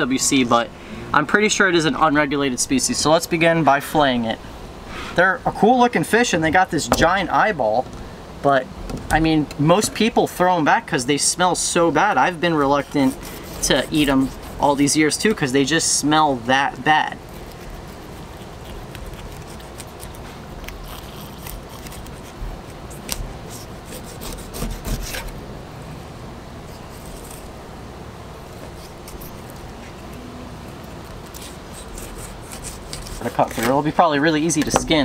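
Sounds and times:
steady background hiss: 0.0 - 35.0
knife slicing fish: 12.7 - 14.6, 23.0 - 25.3, 31.0 - 33.7.

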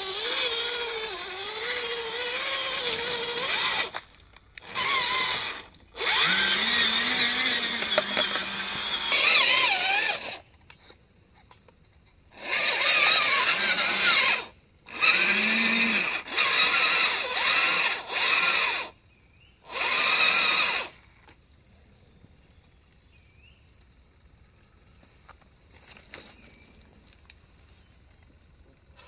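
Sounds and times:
toy truck electric motor whining: 0.0 - 10.5, 12.3 - 19.0, 19.6 - 21.0.

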